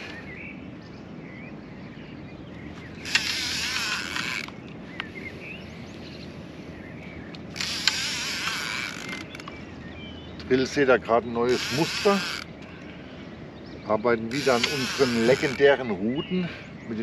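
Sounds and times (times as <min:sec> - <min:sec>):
fishing reel drag whirring: 0:02.9 - 0:04.6, 0:07.4 - 0:09.5, 0:11.4 - 0:12.6, 0:14.3 - 0:15.8
sharp reel click: 0:03.0 - 0:04.6, 0:07.5 - 0:09.4, 0:11.5 - 0:12.5, 0:14.3 - 0:15.6.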